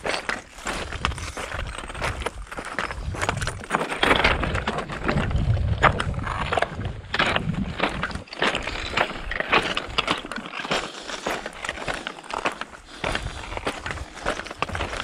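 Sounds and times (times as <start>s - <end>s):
footsteps crunching on stones: 0.0s - 15.0s
walking sticks clicking on rocks: 0.0s - 15.0s.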